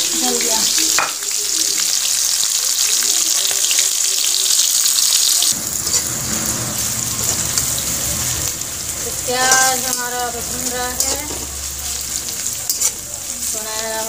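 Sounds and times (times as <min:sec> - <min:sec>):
onions sizzling in hot oil: 0:00.0 - 0:14.0
metal spatula stirring: 0:05.6 - 0:14.0.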